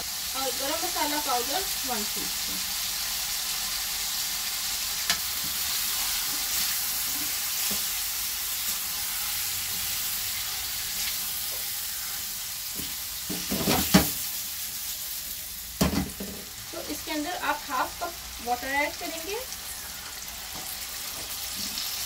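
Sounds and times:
chicken sizzling in hot oil: 0.0s - 22.0s
knocks in pan: 13.3s - 14.2s, 15.8s - 16.4s.

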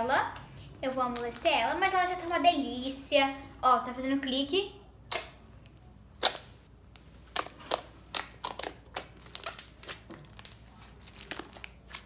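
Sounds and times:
slime kneaded with sharp clicks: 5.0s - 5.4s, 6.2s - 10.6s.

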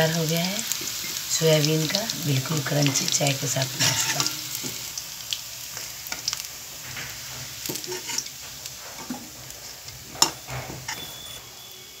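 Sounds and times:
oil sizzling: 0.0s - 12.0s
spoon scraping and knocking pan: 2.7s - 4.8s, 6.1s - 11.4s.

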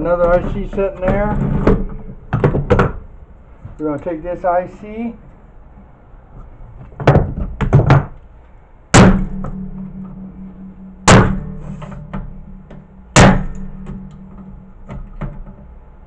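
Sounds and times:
heavy knocks on circuit board: 9.0s - 15.5s
low metallic ring: 9.0s - 15.6s.

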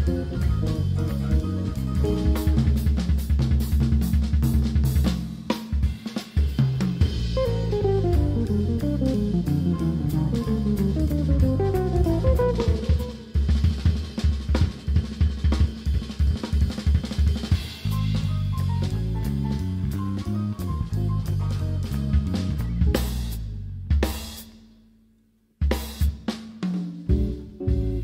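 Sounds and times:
jazz band playing: 0.0s - 5.3s, 6.6s - 14.7s, 17.4s - 23.6s, 26.9s - 28.0s
quick dense drum hits: 6.4s - 19.0s.

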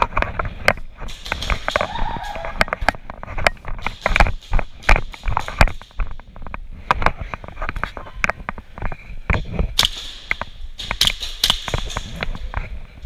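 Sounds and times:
airsoft gunshots snapping: 9.8s - 12.1s.

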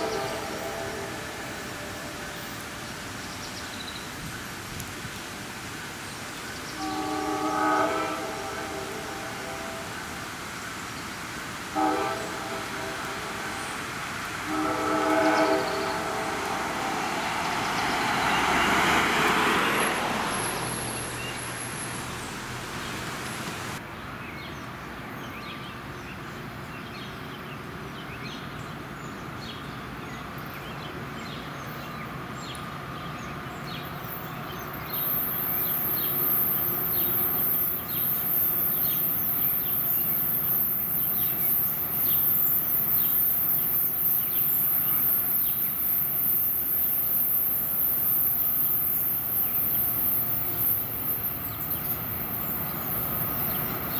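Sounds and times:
train horn blast: 0.0s - 2.6s, 6.7s - 10.2s, 11.7s - 13.8s, 14.4s - 19.1s, 35.0s - 38.1s
train rolling past: 0.0s - 23.8s, 29.4s - 53.9s
train approaching: 0.0s - 23.9s, 25.0s - 53.9s
outdoor noise: 0.0s - 53.9s.

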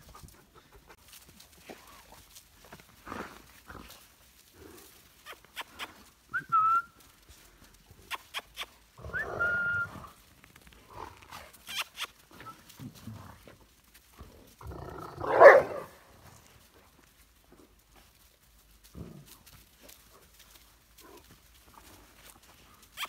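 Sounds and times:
puppies scuffling and clicking: 0.0s - 6.3s, 10.2s - 14.7s, 16.2s - 23.0s
person whistling: 6.3s - 7.0s, 9.1s - 10.0s.

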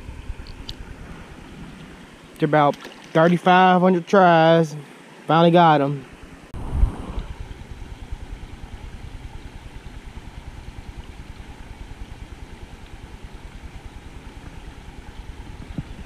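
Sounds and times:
wind buffeting microphone: 6.6s - 12.0s, 13.6s - 16.0s.

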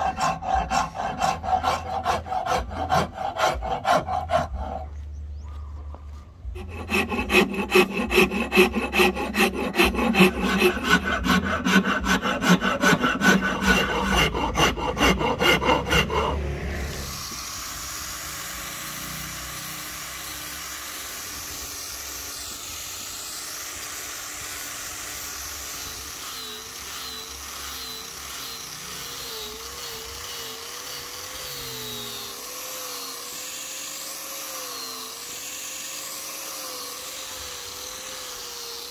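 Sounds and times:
rasp filing wood: 0.0s - 5.0s, 6.4s - 17.5s.

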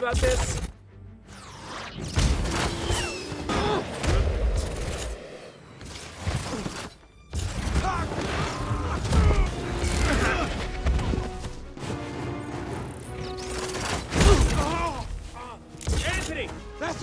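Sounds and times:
gliding whines: 1.3s - 5.9s.

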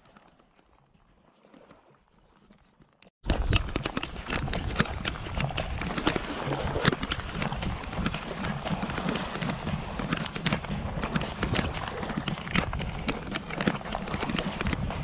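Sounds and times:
wind rumble on microphone: 3.2s - 15.0s.

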